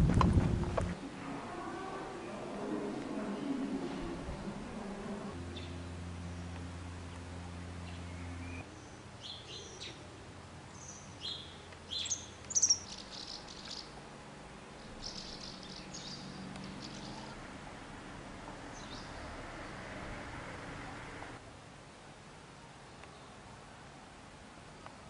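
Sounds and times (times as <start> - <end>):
low steady hum: 0.0 - 25.0
small birds chirping: 3.2 - 14.1, 14.7 - 17.4, 18.6 - 19.8.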